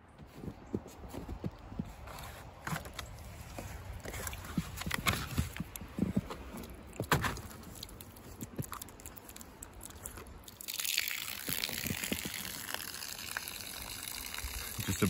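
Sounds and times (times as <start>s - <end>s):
footsteps crunching in snow: 0.1s - 10.2s.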